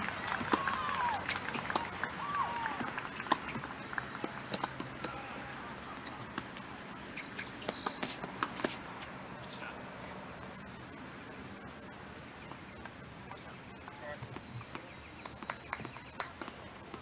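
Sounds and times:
high bird chirps: 5.9 - 8.0.

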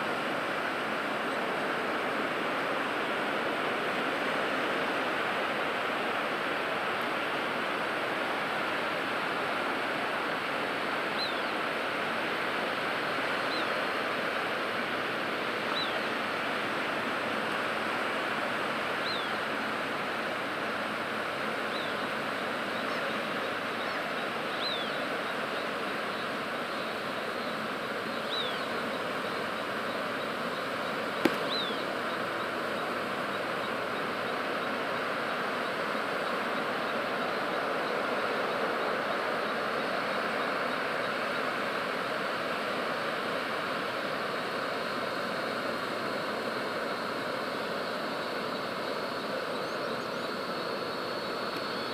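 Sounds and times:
rushing outdoor noise: 0.0 - 51.9
bird chirping: 23.8 - 25.0, 28.2 - 28.8, 31.2 - 32.4
sharp click: 31.2 - 31.7.

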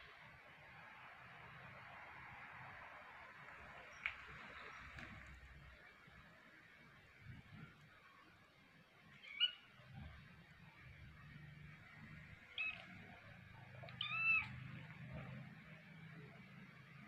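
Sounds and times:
kitten mewing: 13.8 - 14.5.

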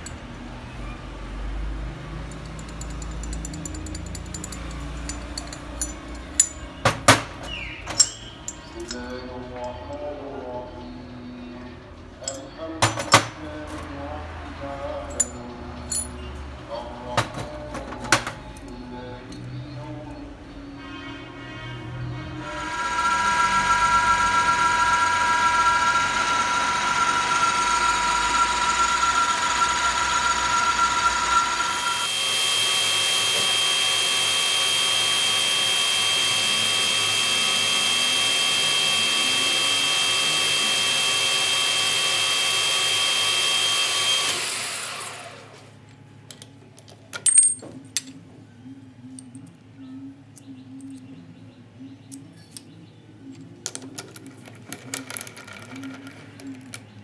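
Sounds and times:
metal lathe whining: 2.3 - 10.0, 22.4 - 45.6.

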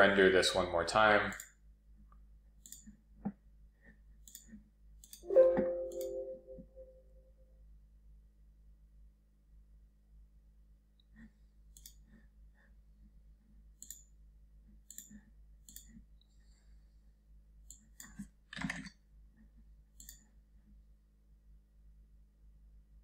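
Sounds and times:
mouse button clicks: 5.3 - 6.9.

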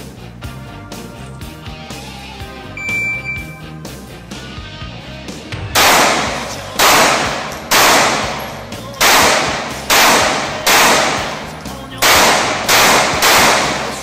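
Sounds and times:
handgun shots echoing: 5.8 - 14.0.

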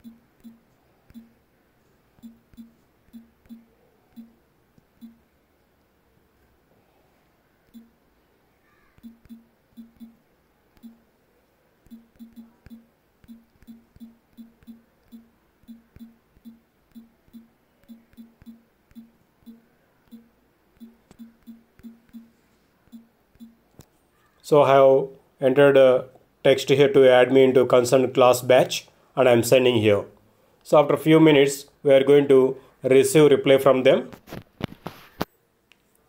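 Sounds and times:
phone keyboard vibration buzzes: 0.0 - 1.4, 2.2 - 4.4, 9.0 - 10.2, 11.9 - 22.3.

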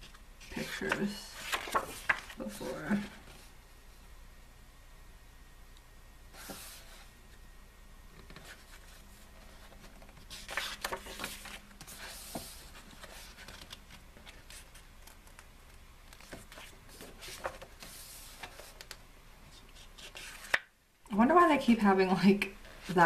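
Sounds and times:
photobook pages rustling: 0.0 - 3.5, 6.4 - 7.1, 8.2 - 20.7.

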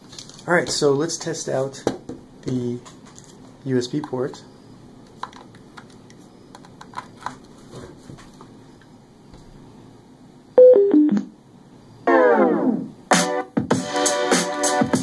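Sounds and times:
music from speaker: 12.1 - 15.0.

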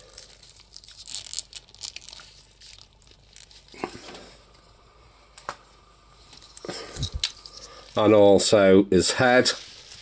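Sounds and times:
plastic toy rustling: 0.0 - 4.2.

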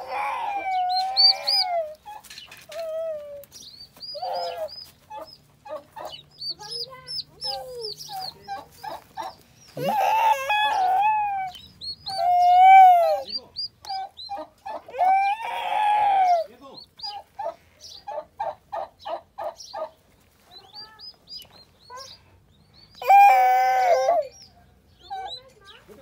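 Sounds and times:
turkey poults peeping: 0.5 - 22.2, 24.3 - 25.9
long arched bird calls: 0.9 - 2.7, 3.5 - 20.0.

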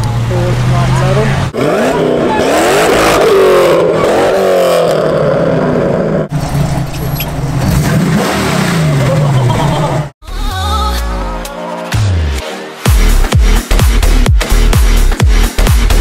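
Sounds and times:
car engine revving: 0.0 - 10.2.

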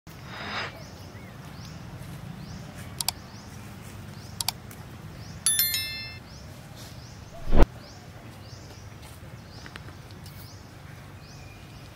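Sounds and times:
bright electronic chime: 5.5 - 6.2.

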